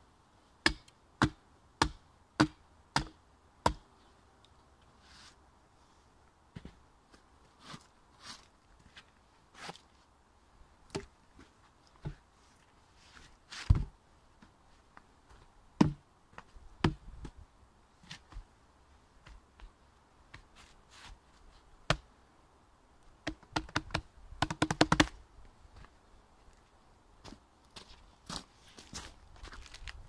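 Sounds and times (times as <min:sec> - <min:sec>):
wooden logs knocking: 0:15.8 - 0:16.0, 0:23.2 - 0:25.1.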